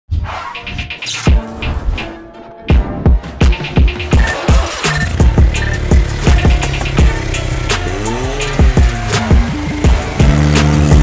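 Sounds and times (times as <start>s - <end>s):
music with heavy beat: 0.6s - 11.0s
car engine revving: 4.0s - 11.0s.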